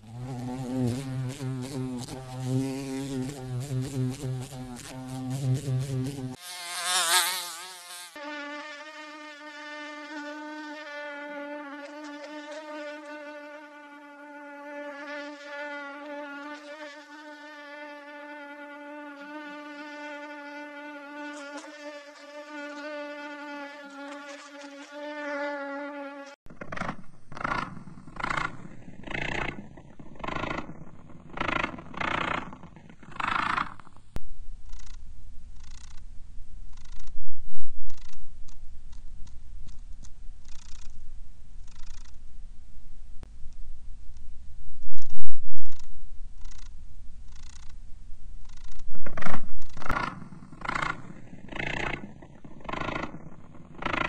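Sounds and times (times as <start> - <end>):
mosquito whine: 0.0 - 26.4
bee buzzing: 0.0 - 34.0, 48.4 - 54.0.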